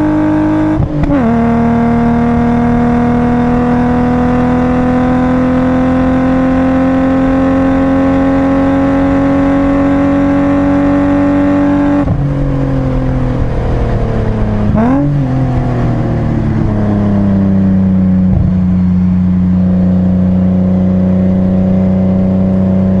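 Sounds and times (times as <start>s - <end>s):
car engine revving from inside cabin: 0.0s - 12.2s, 14.7s - 15.1s.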